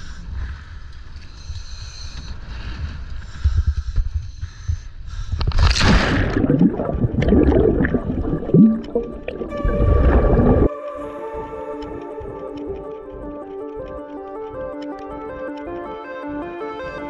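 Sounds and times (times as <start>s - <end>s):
underwater bubbling and gurgling: 5.4s - 15.4s
splash into water: 5.5s - 10.7s.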